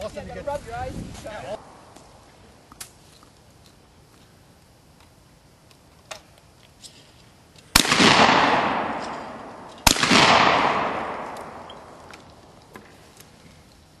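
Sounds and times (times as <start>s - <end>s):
shotgun shots echoing: 7.8s - 12.5s.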